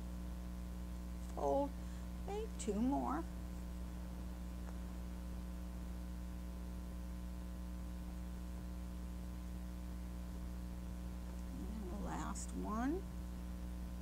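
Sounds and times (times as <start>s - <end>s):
electrical mains hum: 0.0s - 14.0s.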